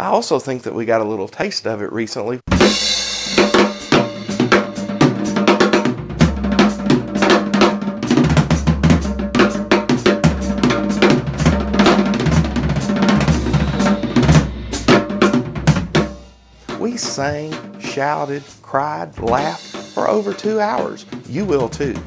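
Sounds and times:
snare and tom strokes: 2.5 - 22.0
bass drum kicks: 10.3 - 16.2, 16.8 - 18.0, 19.2 - 20.2.

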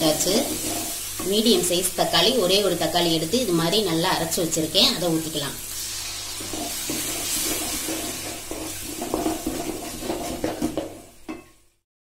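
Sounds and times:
puree sizzling in hot oil: 0.0 - 11.8
wooden spatula scraping pan: 0.1 - 1.3, 6.2 - 11.2.

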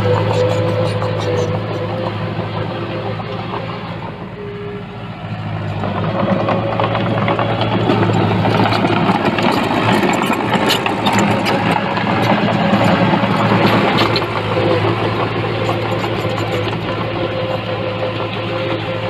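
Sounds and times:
diesel engine running: 0.0 - 19.0
metallic clatter: 5.9 - 17.7.

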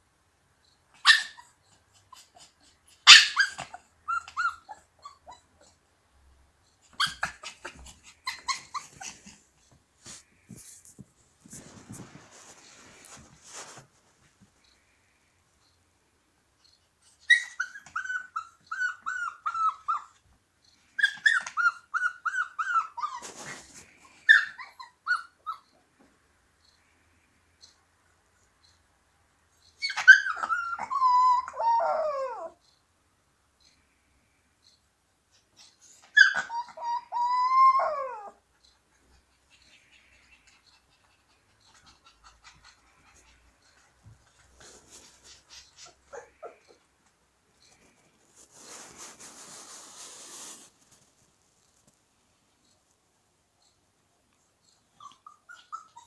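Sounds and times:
puppy yipping howls: 29.8 - 32.6, 36.1 - 38.4.

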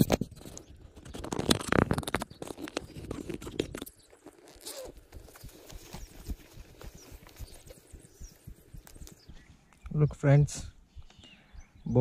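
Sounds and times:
zipper being pulled: 1.1 - 6.5
footsteps on dry grass: 4.0 - 9.8.

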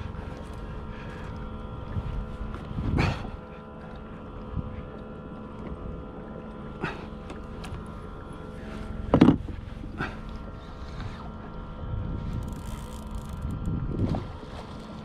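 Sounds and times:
steady hum: 0.0 - 15.0
fishing reel knocks and clicks: 12.3 - 13.6.

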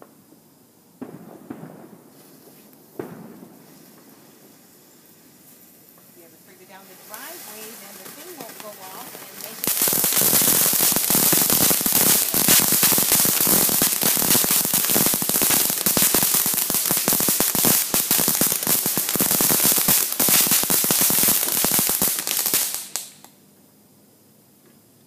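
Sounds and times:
firework crackling: 0.0 - 23.4.

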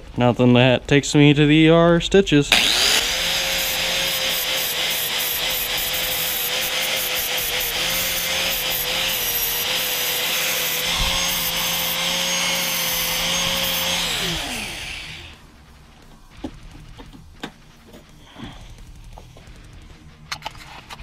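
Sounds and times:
angle grinder grinding steel: 2.5 - 15.4
grinder spinning down: 2.5 - 15.4.

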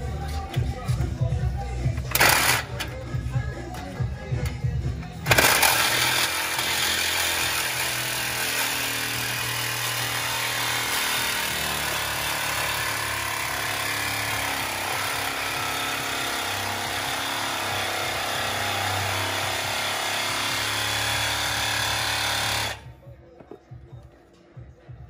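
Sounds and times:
reciprocating saw cutting metal pipe: 2.1 - 2.9, 5.3 - 22.8.

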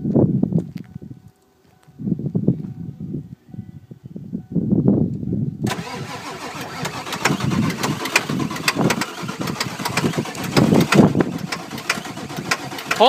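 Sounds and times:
diesel engine cranking and starting: 5.6 - 13.0
engine running rough with knocks: 6.6 - 13.0.

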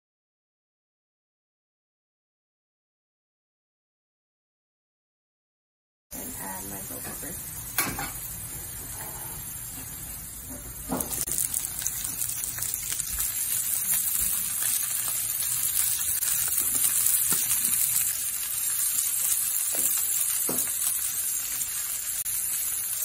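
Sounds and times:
vegetables sizzling in oil: 6.2 - 23.0.

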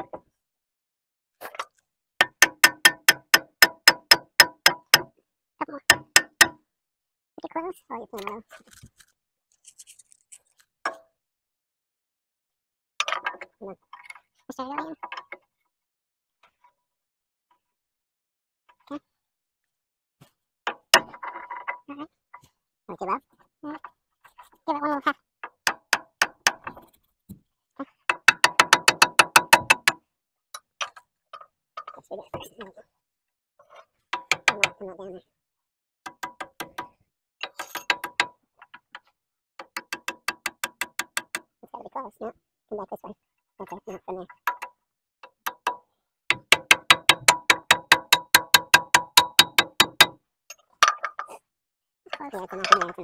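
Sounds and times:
hammer tapping on steel: 2.2 - 5.1, 5.9 - 6.6, 28.1 - 30.0, 45.5 - 50.2.

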